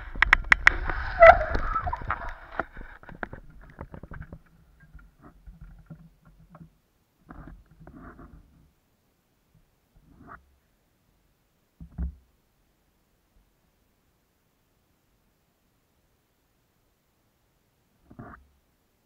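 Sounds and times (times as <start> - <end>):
bicycle rattling on forest path: 0.0 - 4.6
faint rustles and knocks: 0.0 - 8.8, 11.8 - 12.4
bicycle squeak: 1.0 - 2.5.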